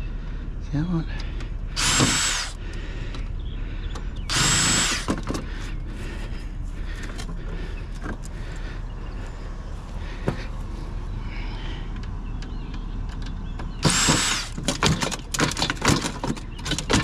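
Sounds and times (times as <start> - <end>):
power drill whining: 1.8 - 2.6, 4.3 - 5.4, 13.8 - 15.7.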